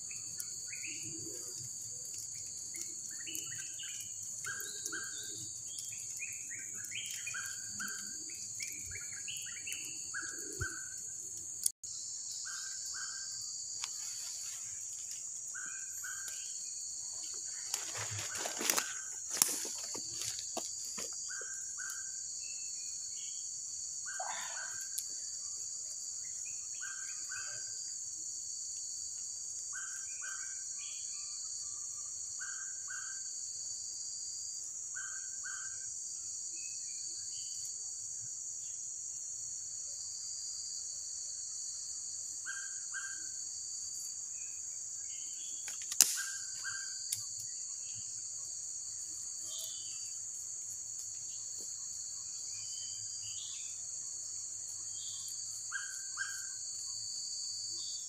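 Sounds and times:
insects droning: 0.0s - 58.0s
sharp snap: 45.7s - 46.4s.

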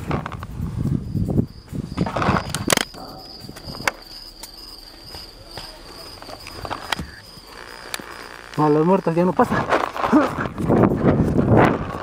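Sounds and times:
rustling near microphone: 0.0s - 8.6s
high insect trill: 0.0s - 12.0s.

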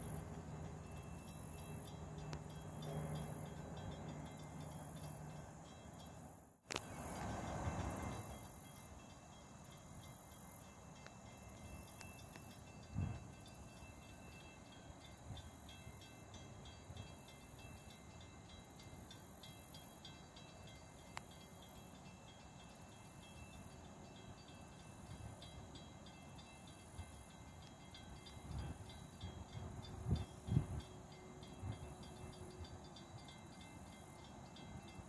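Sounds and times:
low steady rumble: 0.0s - 23.4s
insects trilling: 0.0s - 35.0s.

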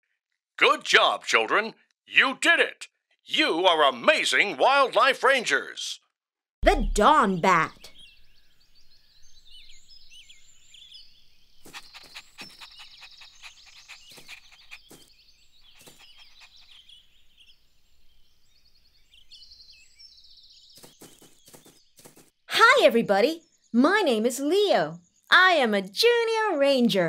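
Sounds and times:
birds chirping and trilling: 6.6s - 27.0s.

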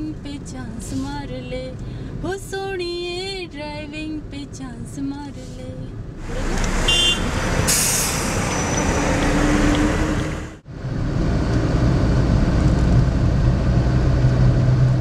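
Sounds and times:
engine and road noise: 0.0s - 15.0s
air brakes hissing: 7.6s - 8.9s.

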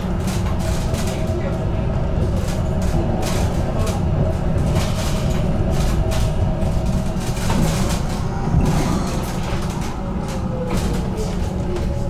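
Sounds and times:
tram rumble on rails: 0.0s - 12.0s.

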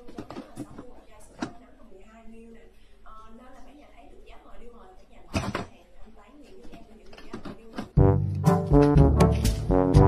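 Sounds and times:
brassy music with percussion: 8.0s - 10.0s.

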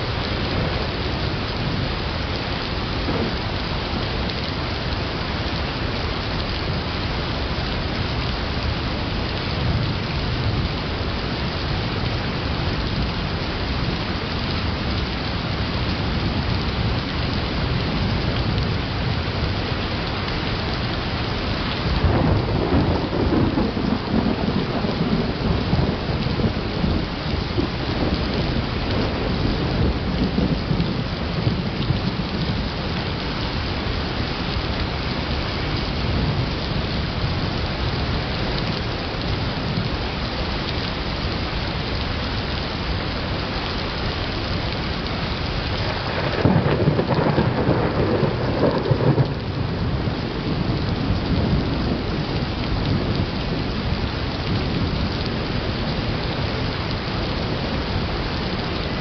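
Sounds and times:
thunder rumble: 0.0s - 5.2s, 20.1s - 33.2s, 45.7s - 59.0s
heavy rain: 0.0s - 59.0s.

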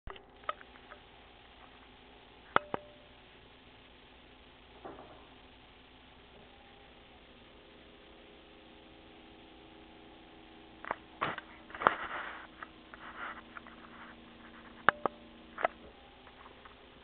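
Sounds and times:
faint steady hum: 0.1s - 17.0s
rustling: 10.8s - 17.0s.

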